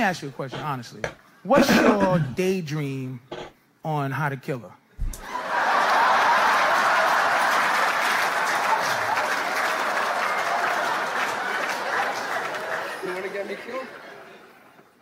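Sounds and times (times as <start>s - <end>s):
audience applause: 5.2s - 14.3s
audience laughing: 5.2s - 14.8s.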